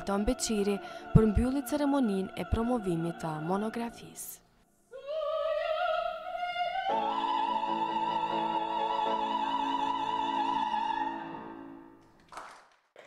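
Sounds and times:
operatic soprano singing: 0.0s - 11.9s
piano: 5.0s - 12.5s.

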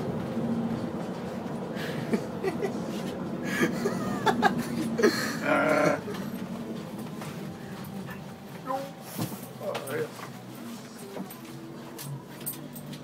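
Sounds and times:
person chuckling and laughing: 1.8s - 6.2s.

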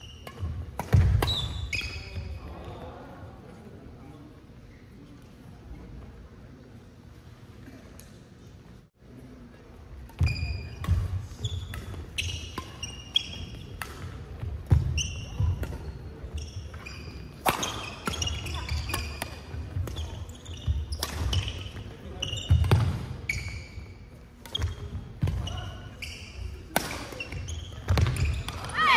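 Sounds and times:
shoes squeaking on court: 0.0s - 2.4s, 10.2s - 28.8s
rackets hitting shuttlecock: 0.1s - 2.3s, 10.1s - 16.0s, 16.7s - 23.5s, 26.6s - 28.8s.

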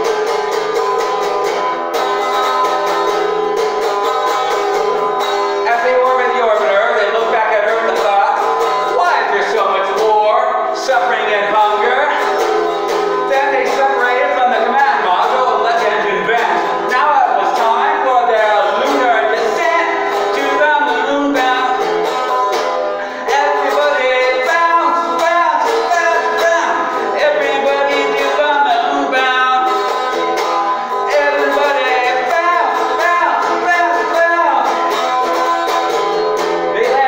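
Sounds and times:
electric guitar rock and roll: 0.0s - 37.0s
man singing: 5.6s - 12.5s, 13.2s - 22.3s, 23.0s - 30.2s, 30.8s - 36.0s, 36.6s - 37.0s.

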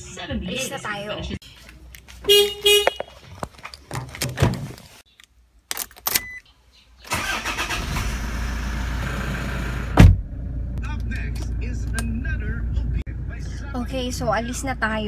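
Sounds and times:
car door opening and shutting: 3.9s - 4.8s, 9.9s - 10.3s
car engine starting and idling: 7.0s - 15.0s.

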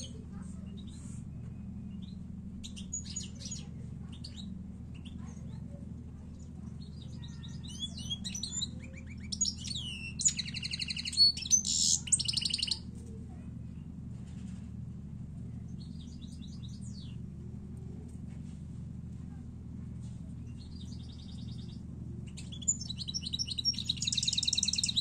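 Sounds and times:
goldfinch singing: 6.8s - 12.8s, 20.7s - 25.0s.

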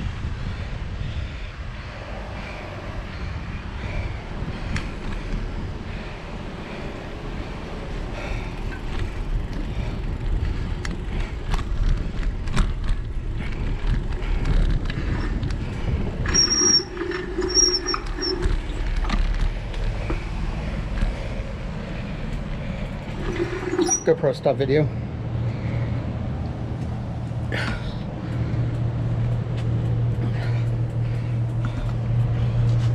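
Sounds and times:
tyre road rumble: 0.0s - 32.9s
wind buffeting microphone: 0.0s - 32.9s
bike clicks and rattles: 3.2s - 24.1s, 25.4s - 32.9s
high-pitched squeals: 16.3s - 19.0s, 23.2s - 24.4s.

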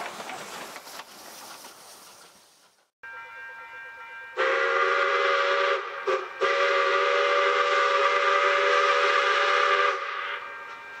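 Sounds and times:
steam locomotive chime whistle: 3.0s - 11.0s.

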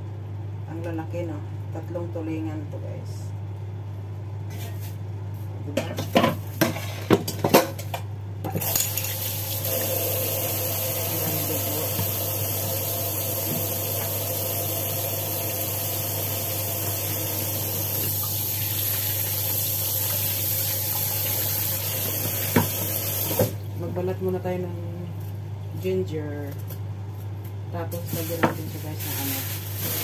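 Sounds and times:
kitchen tap running: 8.5s - 23.7s.

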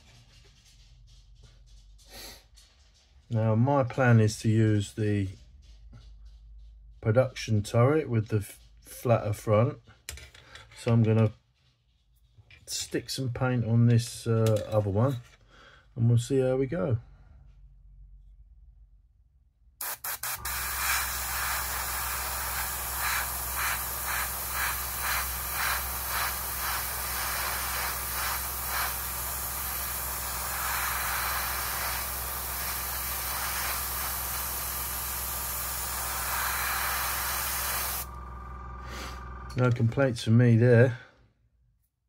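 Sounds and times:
airbrush spraying hiss: 19.8s - 38.1s
low hum: 35.6s - 40.0s.

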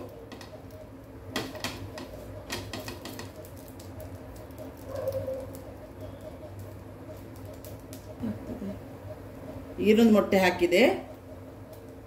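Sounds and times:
flatbread crackling on hot pan: 0.0s - 9.3s
low steady hum: 0.0s - 12.0s.

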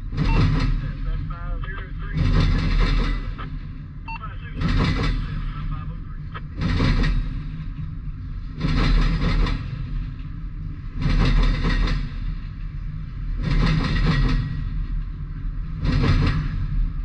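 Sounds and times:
freight train rumble: 0.0s - 17.0s.

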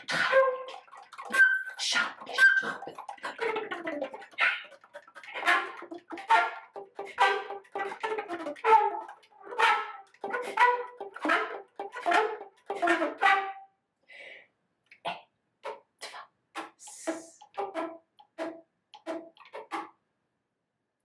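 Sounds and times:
breathy flute notes: 0.0s - 13.6s.

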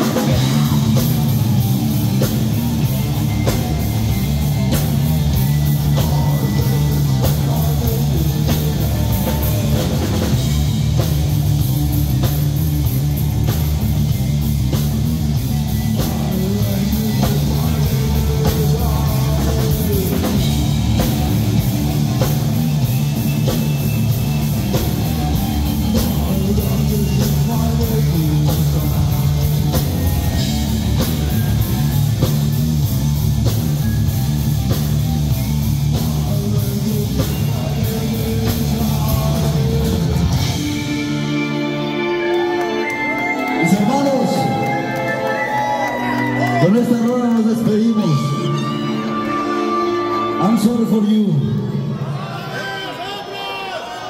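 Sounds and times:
drum kit and cymbal hits: 0.0s - 41.3s
electric bass: 0.0s - 51.4s
distorted electric guitar: 0.0s - 51.7s
person singing: 5.8s - 10.6s, 16.0s - 21.3s, 25.5s - 31.6s, 35.9s - 47.2s.

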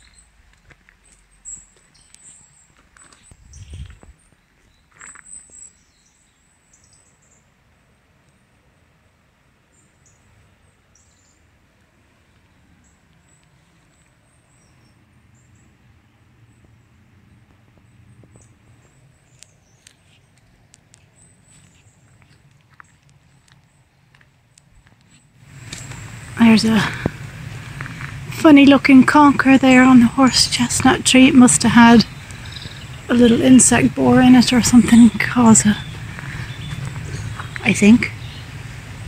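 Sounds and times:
high birdsong chirps: 1.0s - 7.5s, 9.7s - 11.5s, 12.2s - 39.0s
low steady rumble: 25.4s - 39.0s.

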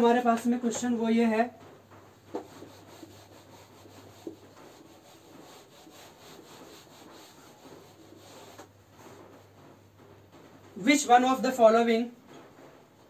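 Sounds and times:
duster rubbing whiteboard: 1.9s - 10.4s.

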